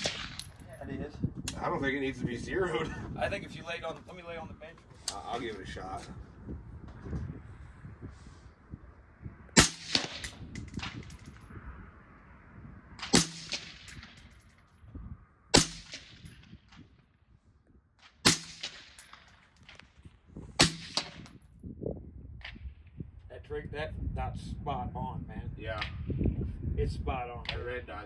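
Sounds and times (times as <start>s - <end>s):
rifle shots: 0.0s - 0.6s, 9.6s - 11.0s, 13.0s - 14.3s, 15.6s - 16.4s, 18.2s - 19.3s, 20.6s - 21.3s.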